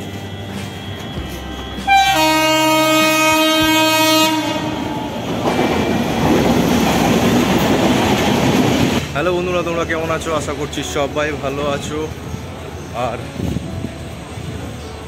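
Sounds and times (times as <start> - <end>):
train wheels on rails: 0.0 - 15.0
train horn blast: 0.6 - 5.3.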